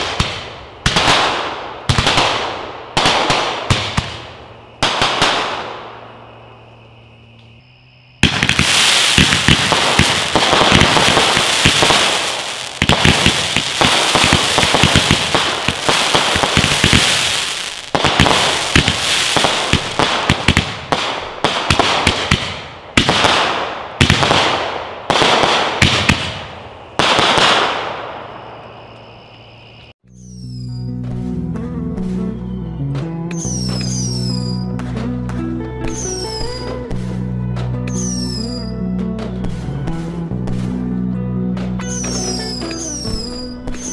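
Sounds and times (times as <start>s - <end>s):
firework crackling: 0.0s - 5.9s, 8.2s - 28.6s
roman candles firing: 8.2s - 29.0s.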